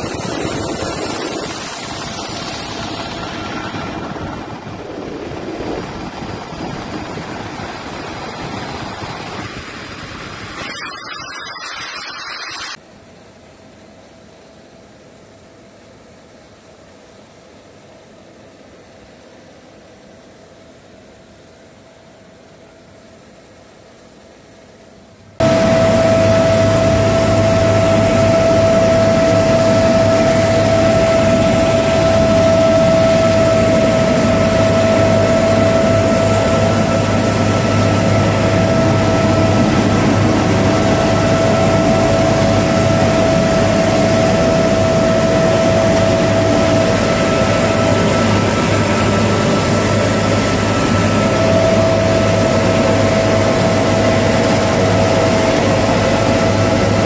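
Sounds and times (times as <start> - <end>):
helicopter engine and rotor drone: 0.0 - 12.8, 25.4 - 57.0
helicopter turbine whine: 0.0 - 12.8, 25.4 - 57.0.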